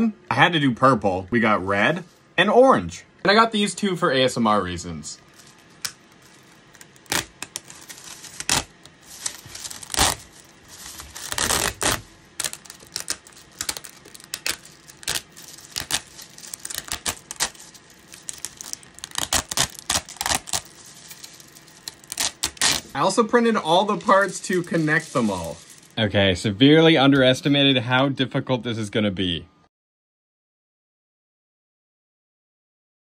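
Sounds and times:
plastic links clicking and clattering: 5.3s - 22.8s.

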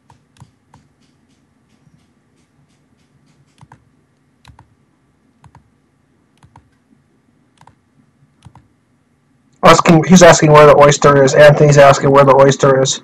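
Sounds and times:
computer mouse clicks: 0.0s - 4.8s, 5.4s - 5.7s, 6.4s - 6.8s, 7.6s - 7.8s, 8.4s - 8.7s.

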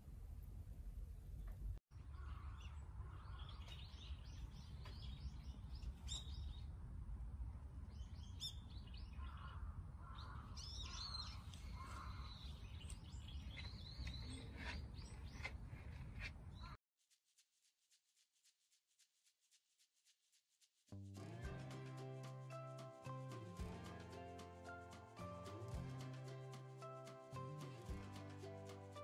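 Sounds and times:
small birds chirping: 2.0s - 6.7s, 7.8s - 16.8s.

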